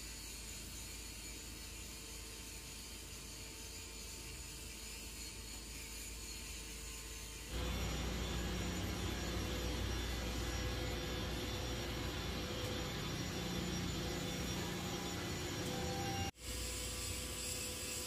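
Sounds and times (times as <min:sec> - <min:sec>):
low drone: 0:07.5 - 0:16.4
workshop hum and rushing: 0:07.5 - 0:18.0.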